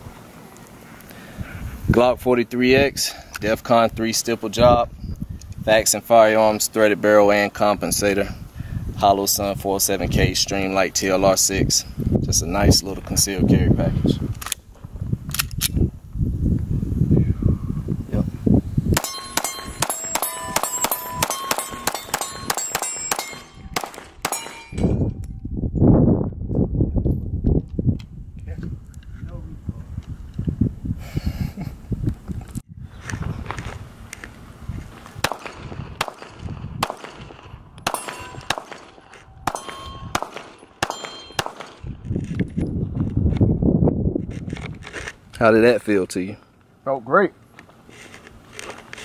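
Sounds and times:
pistol shots: 19.0s - 24.8s, 35.2s - 41.9s
steel targets ringing: 19.0s - 25.2s, 37.9s - 41.8s.

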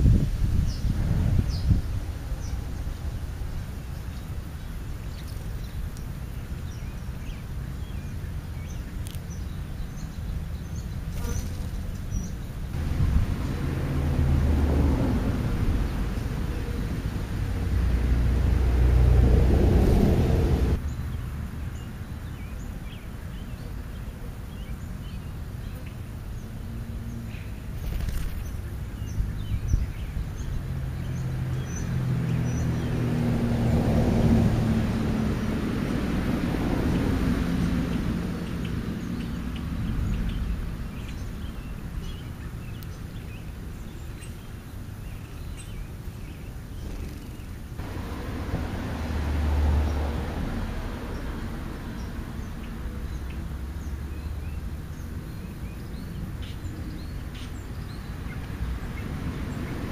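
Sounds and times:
passing traffic drone: 0.0s - 59.9s
loud low rumble: 47.8s - 51.2s.

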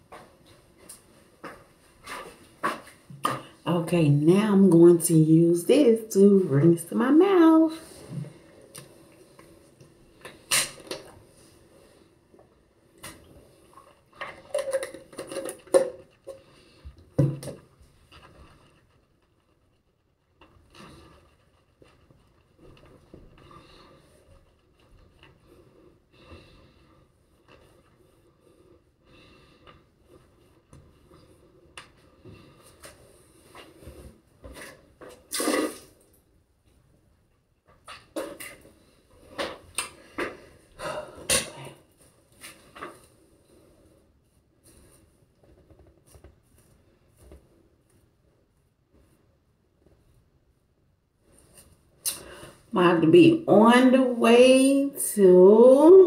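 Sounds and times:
spitting into sink: 10.3s - 11.1s, 34.6s - 36.1s
wet mouth clicks: 52.0s - 52.3s.

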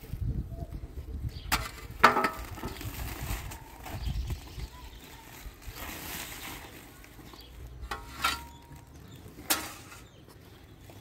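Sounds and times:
woven sack rustling: 2.4s - 7.8s
shovel scraping sand and gravel: 7.6s - 10.2s.

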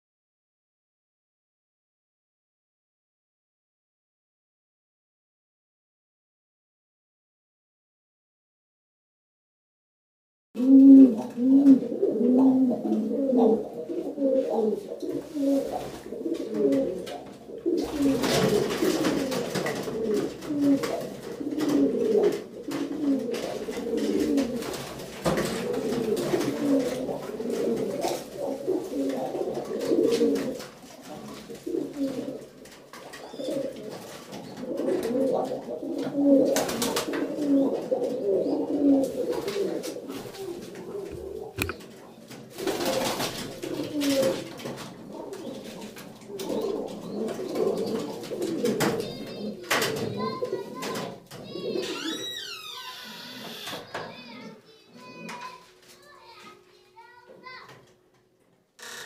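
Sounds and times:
pigeons cooing: 10.6s - 52.3s, 53.2s - 55.8s
rustling noise: 14.3s - 35.8s.

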